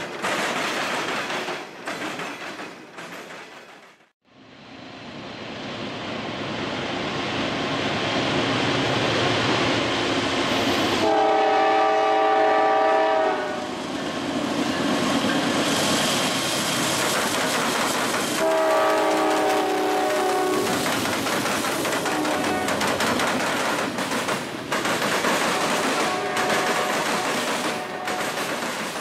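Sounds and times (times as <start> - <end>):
freight train rumble: 0.0 - 29.0
locomotive air horn chord: 11.0 - 13.6, 18.4 - 20.7, 26.0 - 28.2.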